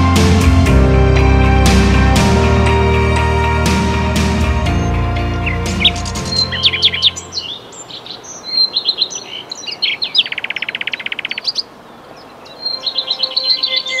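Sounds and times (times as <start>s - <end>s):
songbirds chirping and warbling: 4.8s - 14.0s
fast dry bird trill: 5.4s - 11.6s
faint music tones: 12.3s - 14.0s.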